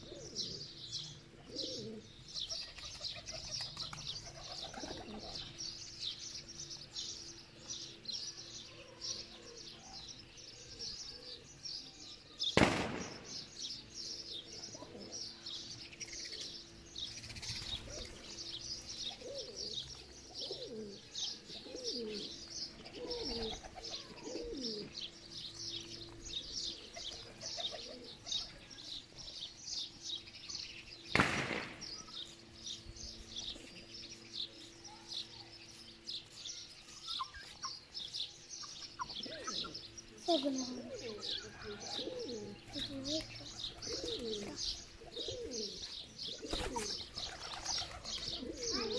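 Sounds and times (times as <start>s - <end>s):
pigeons cooing: 0.0s - 5.8s, 14.0s - 28.7s, 37.1s - 48.9s
small birds chirping: 0.0s - 48.9s.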